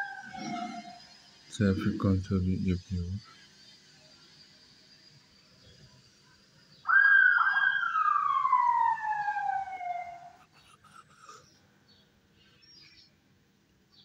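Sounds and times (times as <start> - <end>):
police siren wailing: 0.0 - 1.0, 6.9 - 10.4.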